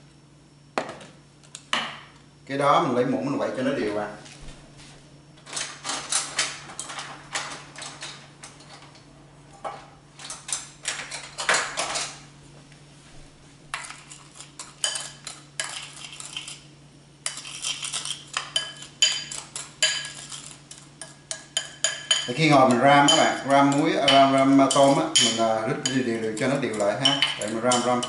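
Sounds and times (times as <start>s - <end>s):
metal spoon clinking in ceramic bowl: 13.8s - 16.6s, 17.2s - 28.0s.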